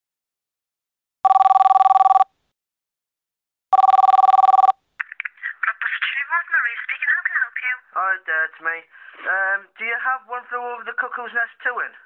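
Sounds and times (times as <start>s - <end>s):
telephone ringing: 1.2s - 2.4s, 3.7s - 4.8s
person speaking on phone: 4.5s - 12.0s.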